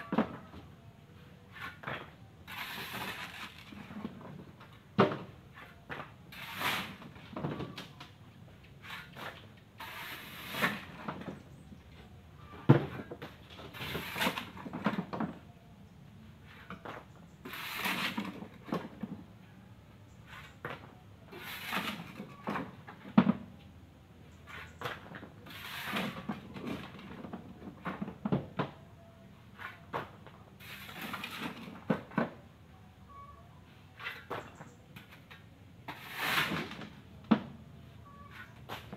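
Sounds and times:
shovel scraping gravel: 0:01.5 - 0:03.9, 0:05.6 - 0:07.2, 0:08.8 - 0:11.1, 0:13.7 - 0:14.8, 0:17.4 - 0:18.6, 0:21.3 - 0:22.4, 0:24.5 - 0:27.0, 0:30.6 - 0:31.8, 0:35.9 - 0:37.0.

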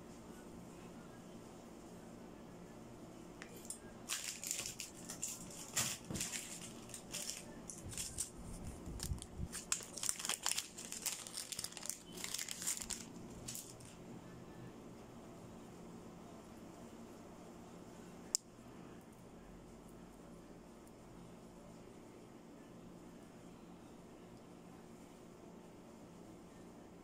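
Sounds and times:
packaging crinkling: 0:03.6 - 0:13.9.

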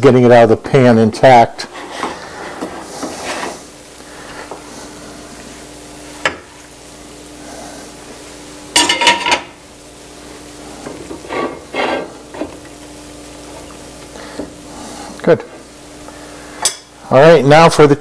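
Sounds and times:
spatula scraping pan: 0:01.6 - 0:04.6, 0:10.9 - 0:12.5.

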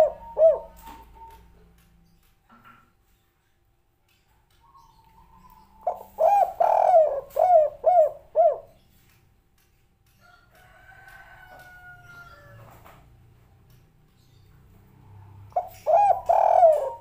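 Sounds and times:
dove cooing: 0:00.0 - 0:01.5, 0:04.8 - 0:08.8, 0:15.5 - 0:17.0.

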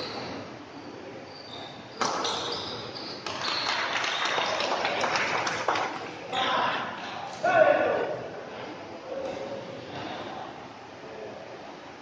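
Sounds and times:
shoe squeaks on court: 0:00.0 - 0:00.5, 0:01.3 - 0:03.8
crowd noise: 0:00.0 - 0:12.0.

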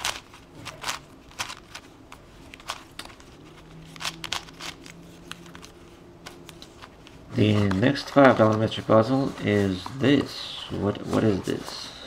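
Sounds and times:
plastic puzzle cube clicking: 0:00.0 - 0:01.9, 0:03.9 - 0:05.7.

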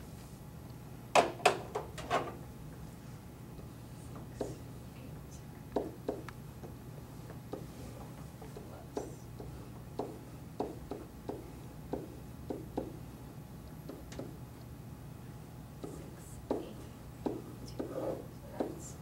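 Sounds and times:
marker tapping on whiteboard: 0:04.4 - 0:04.6, 0:05.8 - 0:07.7, 0:08.4 - 0:13.0, 0:13.8 - 0:14.4, 0:15.8 - 0:18.0, 0:18.6 - 0:18.8.

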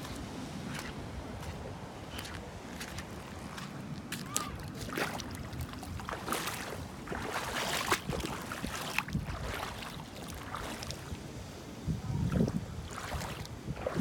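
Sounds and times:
sea water splashing and lapping: 0:00.0 - 0:14.0
wind buffeting microphone: 0:04.9 - 0:14.0.

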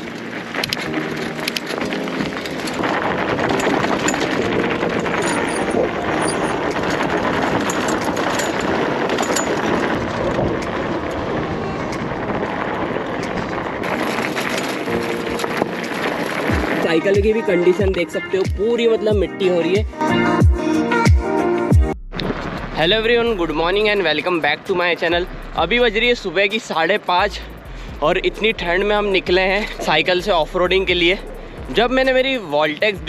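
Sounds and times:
bicycle tyres rolling on gravel: 0:00.0 - 0:19.9, 0:22.2 - 0:33.0.

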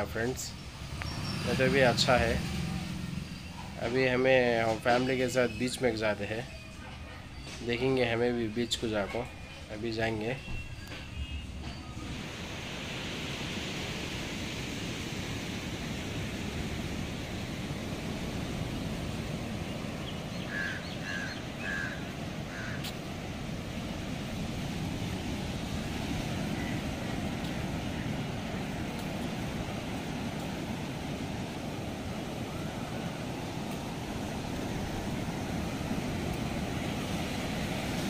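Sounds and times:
sea surf with wind: 0:00.0 - 0:38.0
bird calling: 0:00.8 - 0:07.7, 0:19.4 - 0:23.2, 0:25.7 - 0:28.6.

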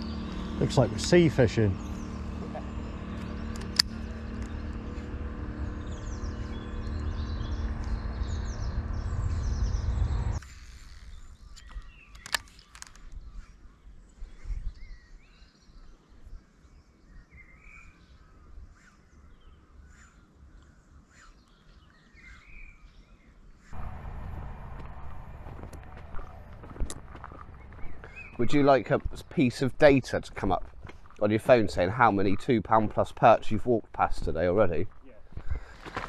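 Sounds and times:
engine humming: 0:00.0 - 0:10.5, 0:23.8 - 0:32.3
birds chirping: 0:00.0 - 0:36.0.

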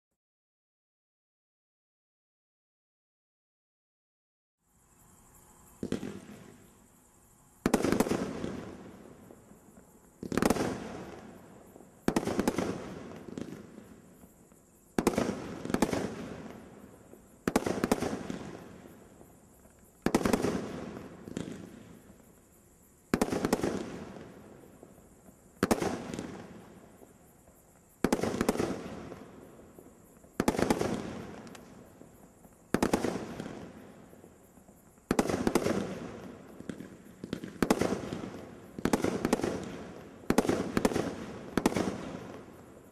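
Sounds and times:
fireworks shots firing: 0:05.8 - 0:06.6, 0:07.6 - 0:09.5, 0:10.2 - 0:11.4, 0:12.0 - 0:14.1, 0:15.0 - 0:16.8, 0:17.4 - 0:18.9, 0:20.0 - 0:22.0, 0:23.1 - 0:24.5, 0:25.6 - 0:26.6, 0:28.0 - 0:29.5, 0:30.3 - 0:31.8, 0:32.7 - 0:34.0, 0:35.0 - 0:42.8.

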